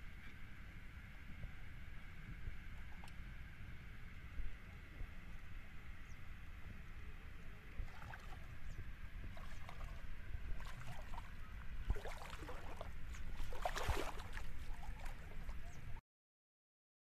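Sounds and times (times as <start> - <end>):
feet wading through water: 7.8 - 15.9.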